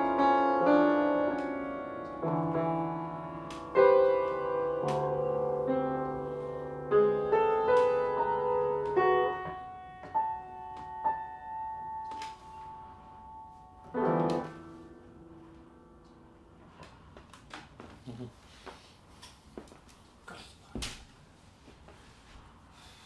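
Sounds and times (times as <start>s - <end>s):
piano chords and notes: 0.0s - 17.5s.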